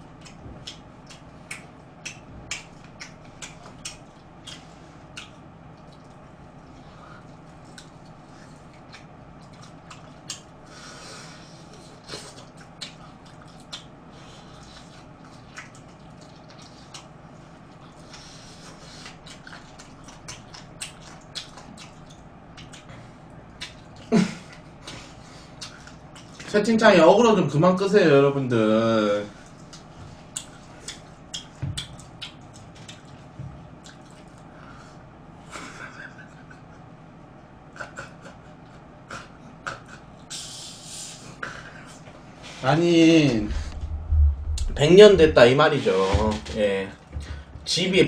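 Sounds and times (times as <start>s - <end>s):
person chewing food: 0.0s - 26.5s, 29.4s - 35.0s
steady low hum: 0.0s - 48.0s.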